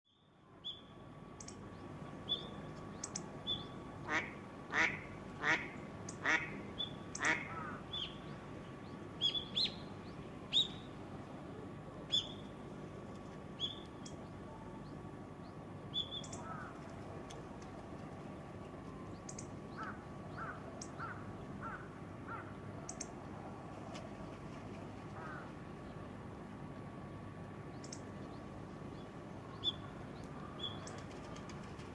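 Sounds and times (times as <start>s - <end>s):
lower bird calls: 0.1s - 12.6s, 13.6s - 17.1s, 18.9s - 23.2s, 27.7s - 31.6s
bird giving sharp calls: 4.1s - 8.1s.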